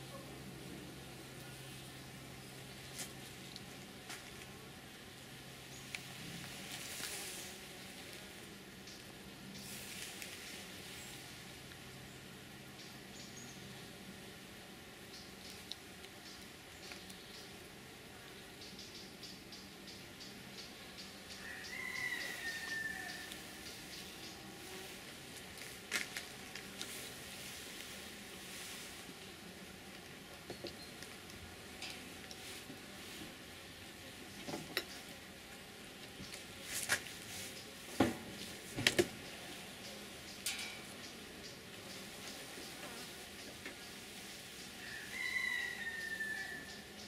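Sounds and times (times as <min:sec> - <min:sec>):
bees humming: 0:00.0 - 0:47.0
soft ticks: 0:15.2 - 0:17.5.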